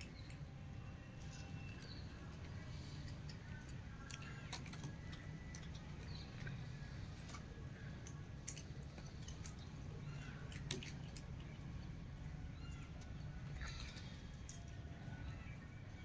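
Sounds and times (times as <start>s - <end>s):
low background rumble: 0.0s - 16.0s
cat lapping water: 2.1s - 15.4s
faint bird chirps: 8.9s - 11.6s, 12.2s - 16.0s.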